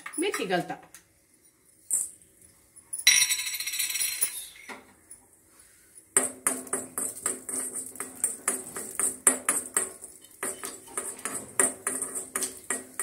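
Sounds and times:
metal spoon scraping pan: 0:07.0 - 0:13.0.

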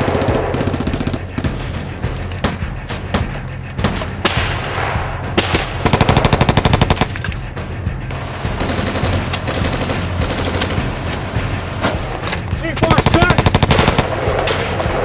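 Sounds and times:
automatic gunfire: 0:05.4 - 0:07.1, 0:12.8 - 0:14.8.

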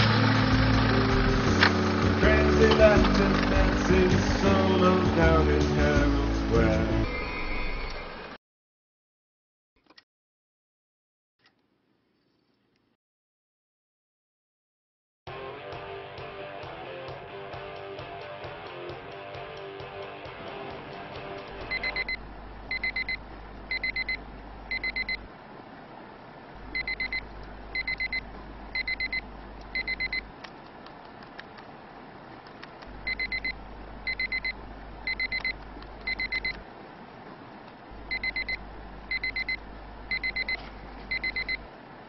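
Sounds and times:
low hum: 0:00.0 - 0:08.1, 0:21.7 - 0:30.4, 0:32.8 - 0:41.8
electronic alarm beeping: 0:21.7 - 0:25.2, 0:26.8 - 0:28.2, 0:28.8 - 0:29.2, 0:29.8 - 0:30.3, 0:33.0 - 0:36.6, 0:38.1 - 0:41.6.

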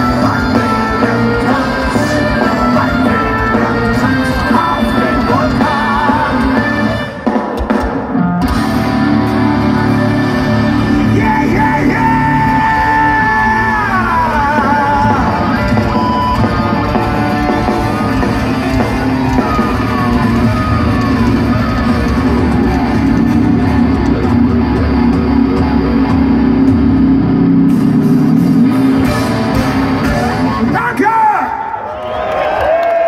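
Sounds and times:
person singing: 0:00.0 - 0:07.2, 0:10.5 - 0:17.8
metal band playing loudly: 0:00.0 - 0:31.7.

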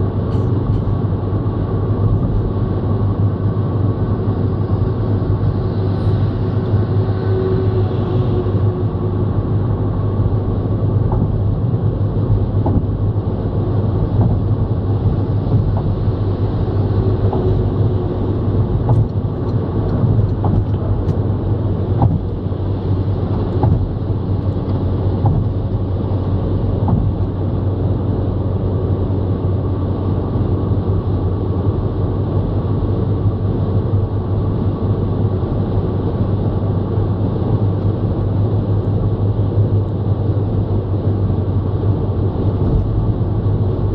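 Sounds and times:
car engine and tyre rumble: 0:00.0 - 0:43.9.

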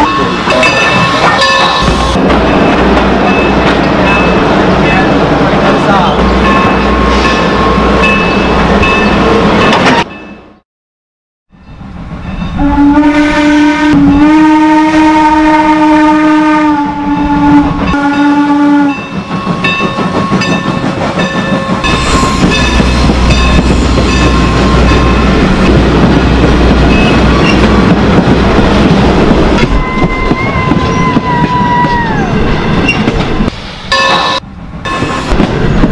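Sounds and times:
train rumble: 0:00.0 - 0:10.6, 0:11.6 - 0:35.9
steam locomotive whistle: 0:12.6 - 0:19.0, 0:29.6 - 0:32.3.

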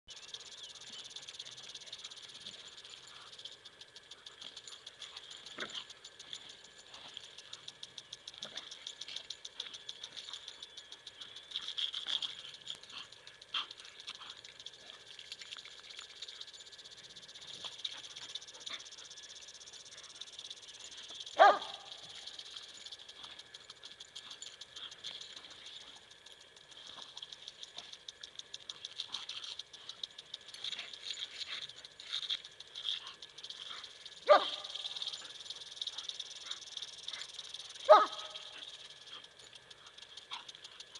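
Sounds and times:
fast ticking: 0:00.1 - 0:40.9
dog barking: 0:21.4 - 0:22.0, 0:34.2 - 0:35.2, 0:37.2 - 0:38.7.

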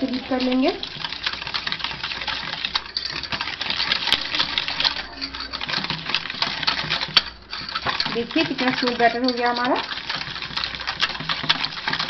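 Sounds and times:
metal utensil beating batter in bowl: 0:00.0 - 0:12.0.

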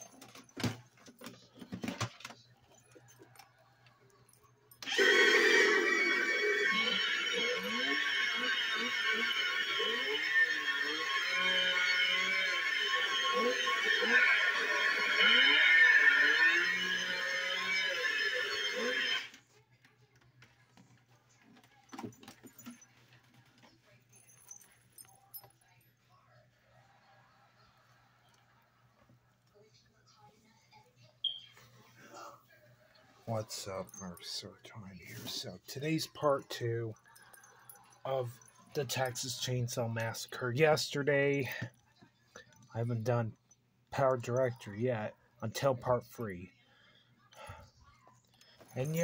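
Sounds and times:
toy chainsaw electronic buzz: 0:04.8 - 0:19.4.

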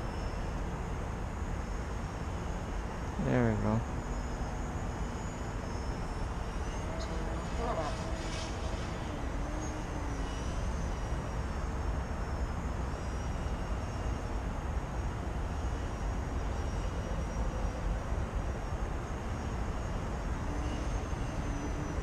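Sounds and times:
electric model airplane motor whine: 0:04.0 - 0:22.0.

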